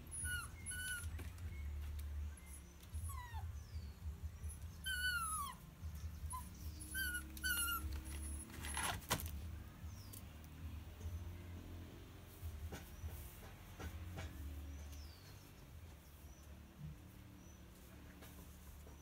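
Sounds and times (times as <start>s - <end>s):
puppy whimpering: 0.0s - 1.8s, 2.4s - 9.0s.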